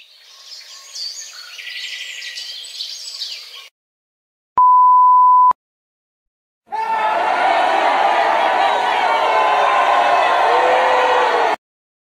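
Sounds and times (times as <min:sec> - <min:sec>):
birds chirping: 0:00.0 - 0:03.7
censor beep tone: 0:04.6 - 0:05.6.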